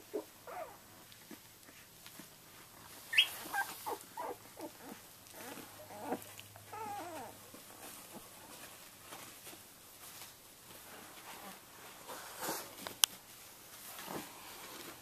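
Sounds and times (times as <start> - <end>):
puppies squeaking and whimpering: 0.1 - 1.0, 3.0 - 7.5.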